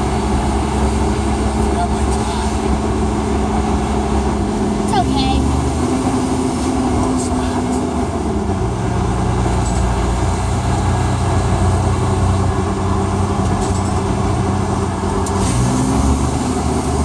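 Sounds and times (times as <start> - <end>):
road noise: 0.0 - 17.0
truck engine running: 0.0 - 17.0.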